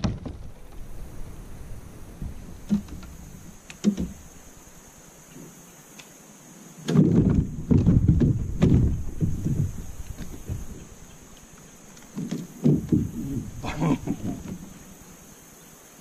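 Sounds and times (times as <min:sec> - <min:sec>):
knocks on plastic kayak: 0:06.9 - 0:09.8, 0:12.2 - 0:13.3
low thumps and rumbling: 0:07.0 - 0:11.0, 0:12.1 - 0:14.9.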